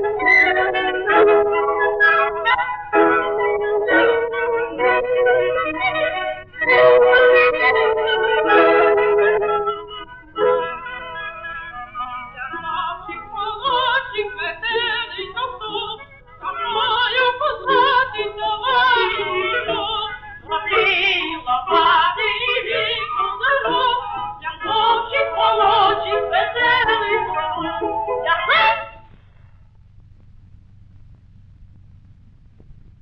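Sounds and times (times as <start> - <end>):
person singing with vibrato: 0.0 - 29.1
instrumental accompaniment: 0.0 - 29.4.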